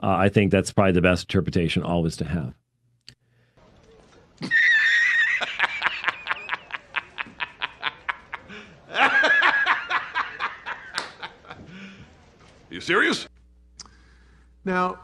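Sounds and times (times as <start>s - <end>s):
man laughing hard: 4.4s - 11.8s.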